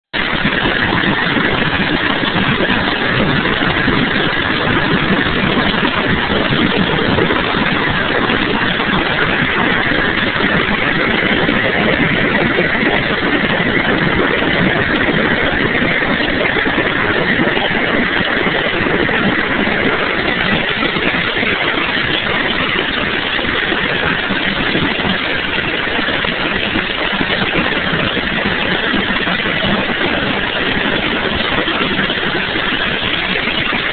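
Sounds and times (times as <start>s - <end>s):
helicopter cabin noise: 0.0s - 33.9s.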